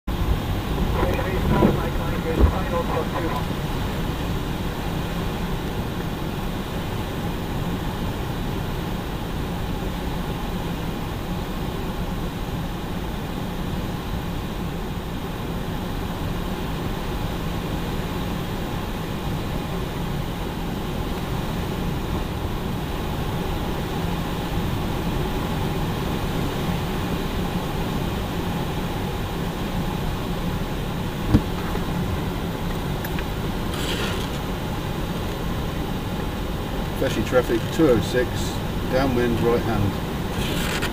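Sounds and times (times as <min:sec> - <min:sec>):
rushing airflow: 0:00.1 - 0:05.4
aircraft engine drone: 0:00.1 - 0:40.9.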